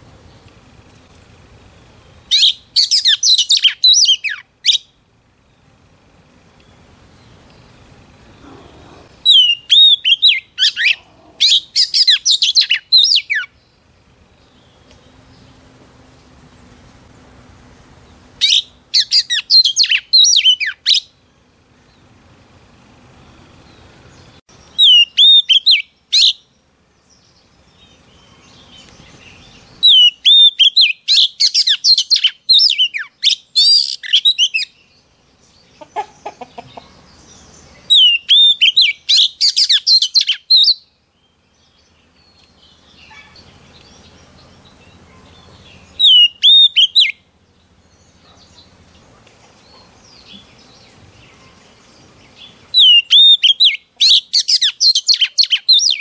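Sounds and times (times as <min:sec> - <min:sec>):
magpie-robin singing whistled phrases: 0:02.3 - 0:04.9, 0:09.2 - 0:13.6, 0:18.4 - 0:21.1, 0:24.7 - 0:26.5, 0:29.8 - 0:34.8, 0:37.8 - 0:40.9, 0:45.9 - 0:47.2, 0:52.7 - 0:56.0.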